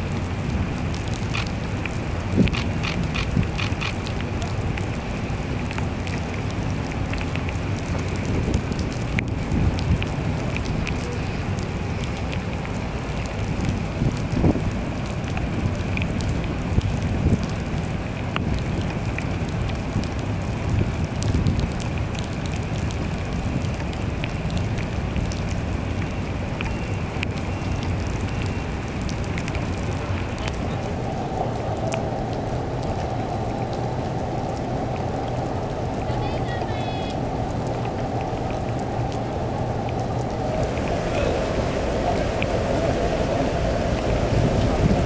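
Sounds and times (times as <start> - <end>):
close raindrop ticks: 0.0 - 45.0
heavy rain: 0.0 - 45.0
low rumble: 29.8 - 45.0.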